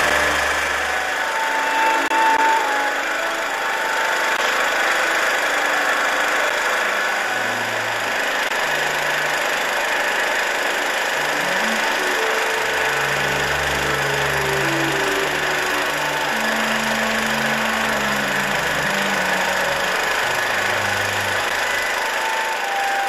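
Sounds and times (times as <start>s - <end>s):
slow low-note music: 0.0s - 4.0s, 10.9s - 23.0s
loud noisy hum: 0.0s - 23.0s.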